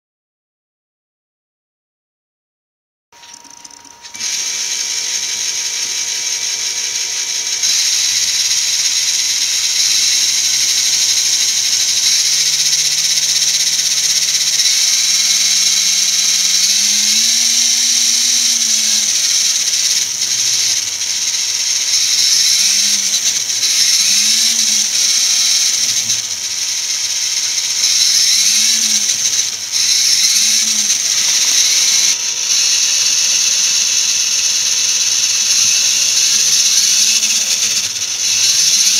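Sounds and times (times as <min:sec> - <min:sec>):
electric motor whirring: 0:03.2 - 0:38.9.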